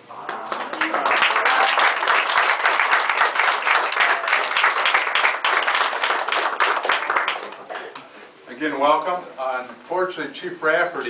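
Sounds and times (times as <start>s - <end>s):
audience applauding: 0.1s - 8.1s.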